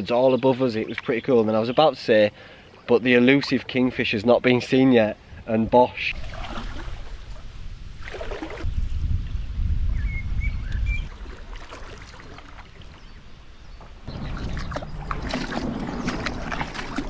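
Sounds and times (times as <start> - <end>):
shallow water rushing and splashing: 6.1 - 8.7, 11.0 - 13.2, 14.0 - 17.0
canoe knocking and scraping riverbed: 11.1 - 17.0.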